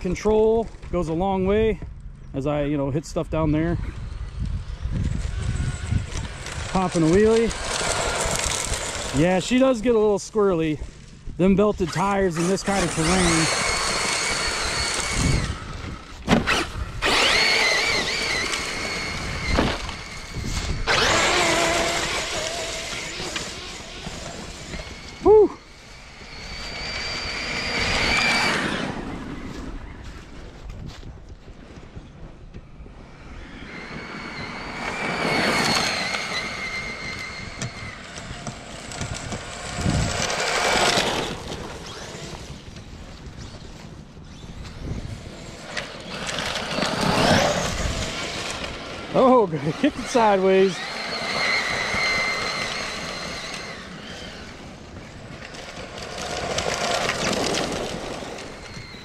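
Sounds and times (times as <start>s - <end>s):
high-pitched motor whine: 0.0s - 31.1s, 31.8s - 59.0s
tires spinning in gravel: 2.4s - 59.0s
tyres spraying gravel: 6.3s - 10.8s, 11.4s - 15.4s, 45.9s - 54.1s.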